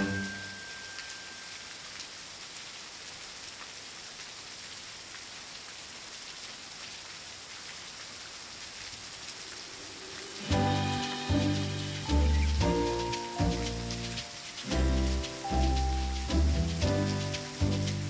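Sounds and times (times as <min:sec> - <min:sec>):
music: 0:00.0 - 0:01.1, 0:10.4 - 0:18.0
steady hiss: 0:00.0 - 0:02.9, 0:08.3 - 0:18.0.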